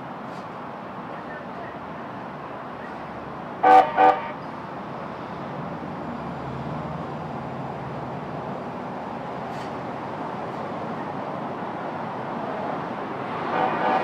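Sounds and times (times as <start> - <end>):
low train hum: 0.0 - 14.0
train horn toots: 3.6 - 4.4, 13.4 - 14.0.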